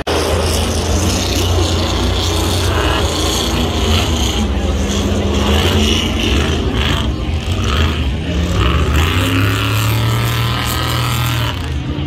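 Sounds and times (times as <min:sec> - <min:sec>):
engine accelerating: 0:00.0 - 0:12.0
race car engines running hard: 0:00.0 - 0:12.0.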